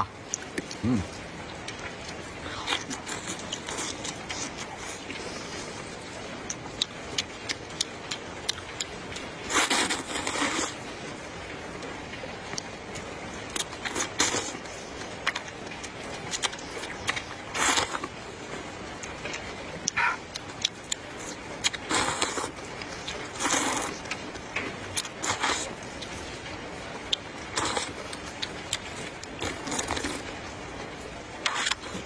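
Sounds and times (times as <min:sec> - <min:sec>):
chewing clicks: 0:00.3 - 0:00.8, 0:06.5 - 0:10.7
slurping noodles: 0:09.5 - 0:10.8, 0:17.5 - 0:18.1, 0:21.7 - 0:24.0, 0:25.1 - 0:25.7, 0:27.5 - 0:28.0, 0:29.4 - 0:30.2, 0:31.4 - 0:32.0.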